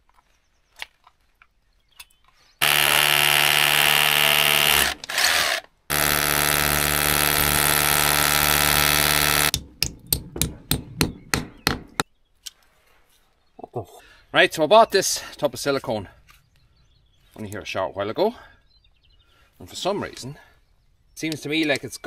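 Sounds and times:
power drill drilling into masonry: 0:02.6 - 0:09.5.

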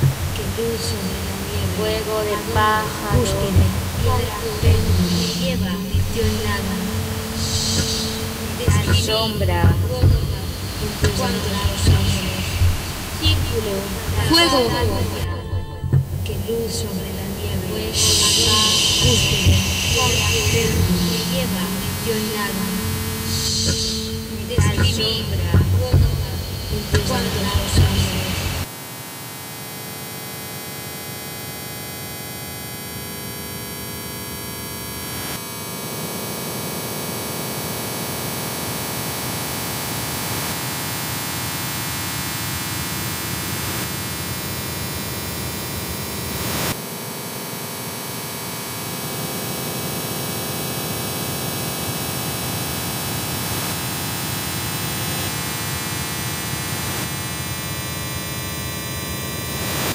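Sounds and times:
droning tones: 0:00.0 - 0:28.7.

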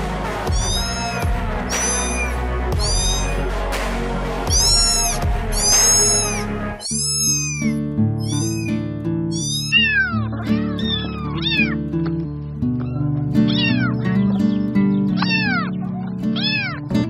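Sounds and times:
background music with low notes: 0:00.0 - 0:17.0
kittens mewing: 0:00.5 - 0:03.5, 0:04.5 - 0:11.9, 0:12.7 - 0:14.1, 0:15.1 - 0:16.9.

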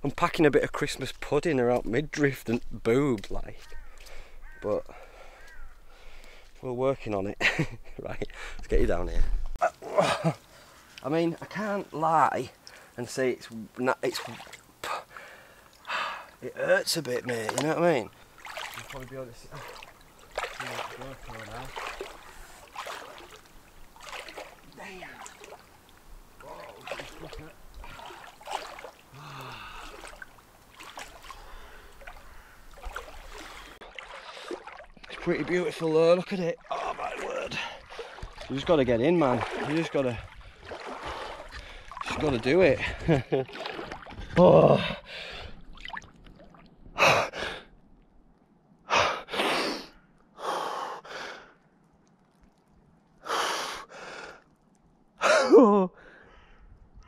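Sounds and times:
sharp water splashes: 0:09.8 - 0:47.1
person wading through water: 0:14.0 - 0:16.4, 0:17.0 - 0:48.6, 0:50.3 - 0:57.0
low vocal groan: 0:29.1 - 0:29.9
man gasping breaths: 0:29.2 - 0:30.1, 0:56.0 - 0:56.7
man groaning: 0:55.2 - 0:56.0.

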